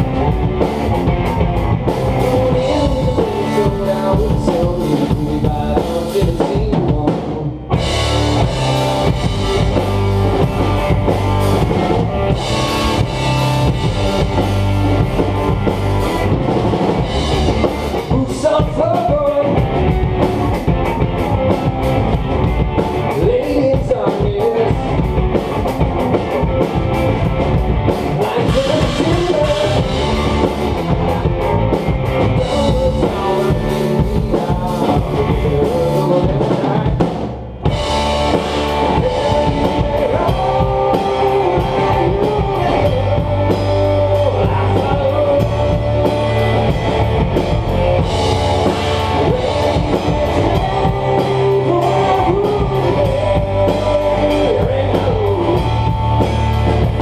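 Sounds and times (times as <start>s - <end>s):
rock band playing live: 0.0s - 57.0s.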